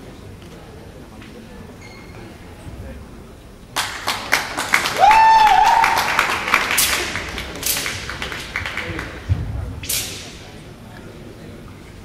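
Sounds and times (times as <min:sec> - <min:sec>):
audience applauding: 0:03.8 - 0:09.2
person whooping: 0:05.0 - 0:06.2.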